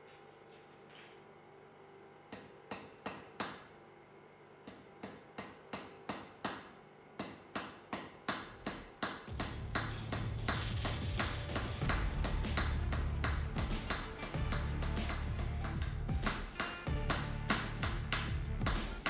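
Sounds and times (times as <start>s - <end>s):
hammer striking steel on anvil: 2.3s - 3.8s, 4.6s - 19.0s
music: 9.3s - 19.0s.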